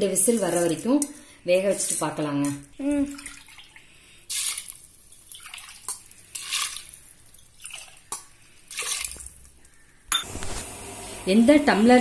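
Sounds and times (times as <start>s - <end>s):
water splashing into a metal pot: 1.8s - 9.6s.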